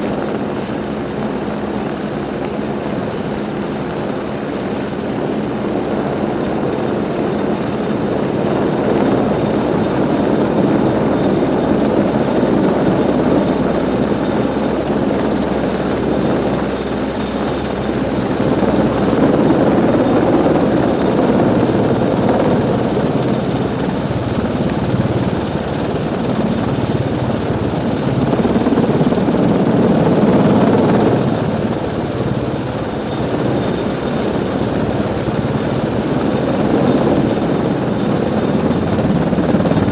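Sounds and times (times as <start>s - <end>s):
helicopter rotor and turbine noise: 0.0s - 39.9s
faint high whine: 9.0s - 39.9s.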